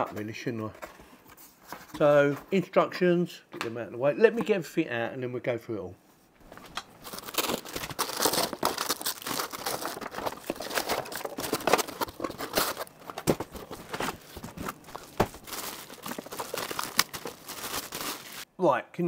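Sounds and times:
plastic bags crinkling: 6.5 - 18.5.

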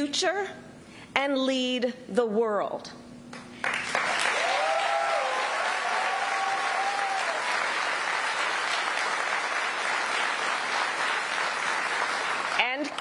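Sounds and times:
crowd applause: 3.6 - 13.0
person whooping: 4.3 - 7.4.

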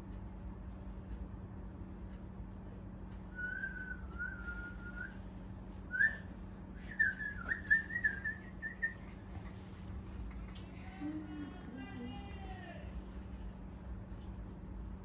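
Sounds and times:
person whistling a tune: 3.3 - 5.2, 5.9 - 9.0.

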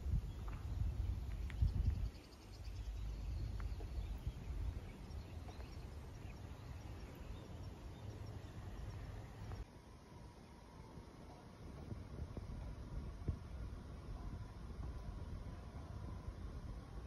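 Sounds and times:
faint bird chirps: 0.1 - 11.4.

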